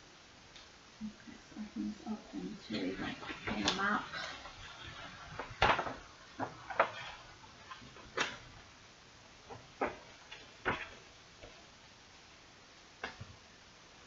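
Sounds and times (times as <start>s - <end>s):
paper crackling and rustling: 2.9s - 8.6s, 9.5s - 11.2s.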